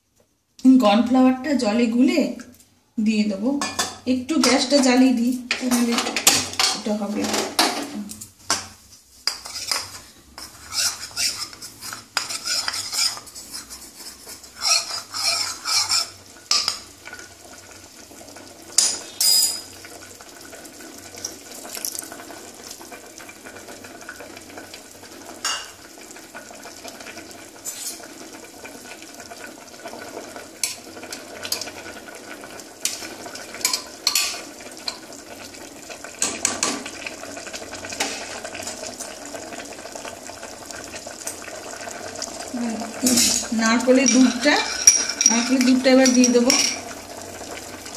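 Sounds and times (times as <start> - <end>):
spoon scraping metal pot: 9.2 - 16.9, 27.6 - 28.1, 33.6 - 35.0, 43.0 - 46.8
spoon clinking against bowl: 44.0 - 46.8.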